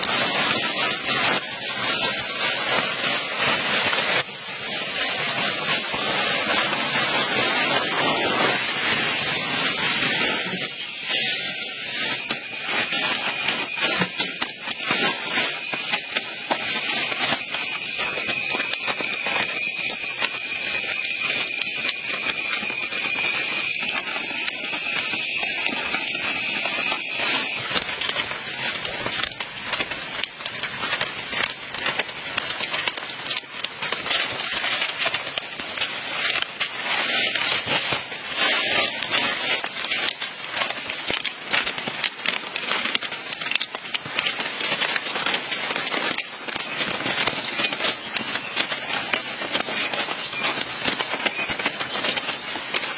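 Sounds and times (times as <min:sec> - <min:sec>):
thin high-pitched whine: 0:00.0 - 0:30.3
palm fronds rustling and crackling: 0:00.0 - 0:52.9.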